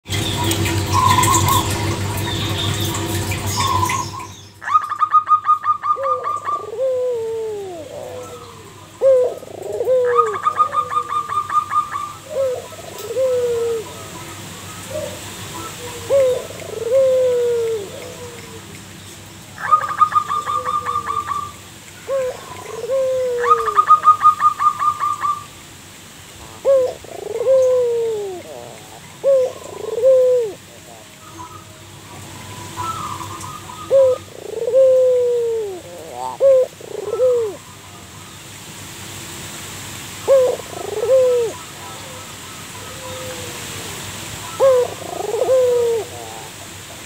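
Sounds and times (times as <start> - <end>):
dove cooing: 3.6 - 14.2, 14.8 - 18.7, 19.6 - 25.5, 26.5 - 31.8, 32.8 - 37.6, 40.2 - 47.0.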